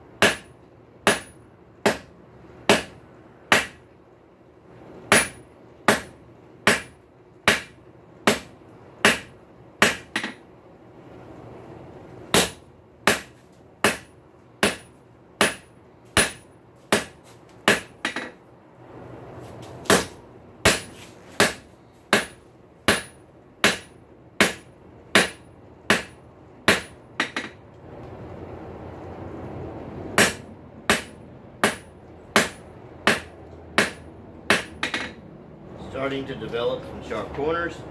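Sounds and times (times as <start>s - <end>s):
hammer striking steel on anvil: 0.2s - 2.1s, 2.7s - 3.8s, 5.1s - 10.4s, 12.3s - 18.4s, 19.9s - 27.6s, 30.2s - 35.2s.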